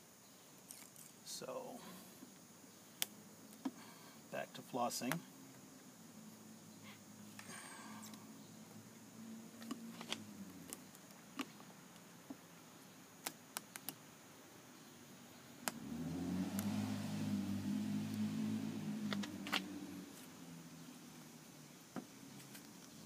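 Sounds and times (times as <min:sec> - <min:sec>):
steady low hum: 0:00.0 - 0:23.0
small sharp clicks and taps: 0:13.2 - 0:14.0.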